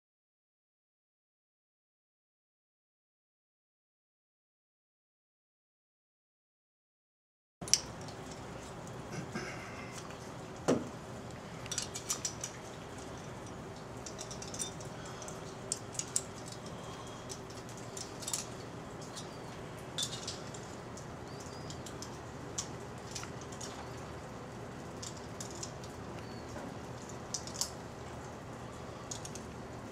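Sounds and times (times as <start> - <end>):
steady low hum: 7.6 - 29.9
metal objects clicking and clinking: 11.6 - 24.2, 24.8 - 27.8, 29.1 - 29.6.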